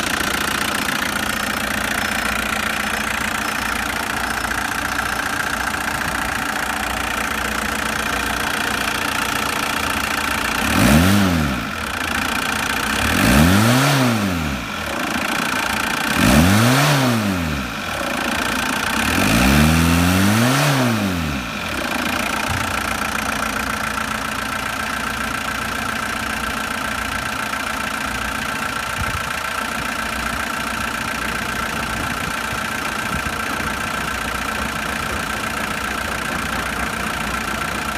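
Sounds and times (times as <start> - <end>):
car engine revving: 0.0 - 24.7
car engine idling: 0.0 - 37.9.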